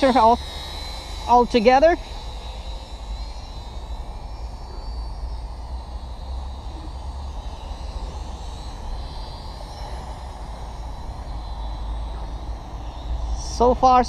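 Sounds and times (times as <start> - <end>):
toy drone motors whining: 0.0 - 14.0.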